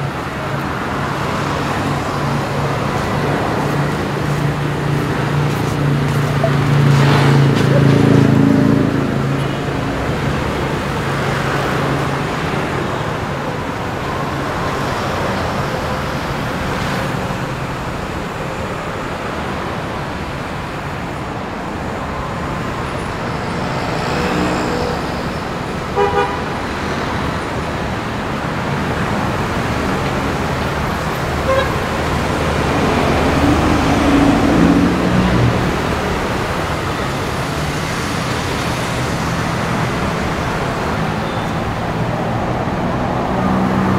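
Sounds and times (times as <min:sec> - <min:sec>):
city street traffic: 0:00.0 - 0:43.9
vehicle horn toots: 0:26.0 - 0:26.6, 0:31.4 - 0:32.0.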